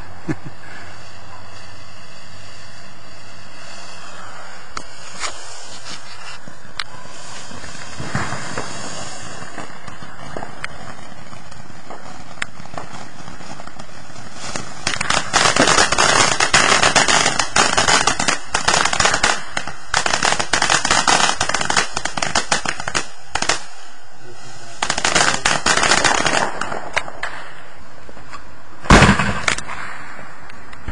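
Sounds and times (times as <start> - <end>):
firework fountain hissing: 0.0 - 30.9
rapid firework crackling: 0.0 - 30.9
firework pops: 4.7 - 23.7, 24.8 - 27.6, 28.2 - 30.9.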